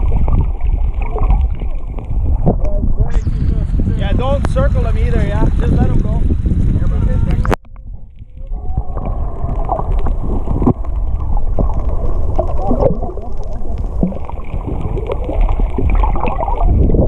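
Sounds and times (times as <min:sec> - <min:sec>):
underwater rush of water: 0:00.0 - 0:17.0
underwater clicks and knocks: 0:07.3 - 0:17.0.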